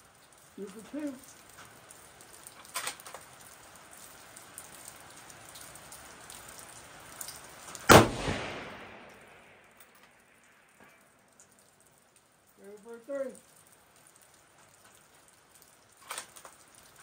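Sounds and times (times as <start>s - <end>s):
rifle shot with echo: 7.9s - 9.8s.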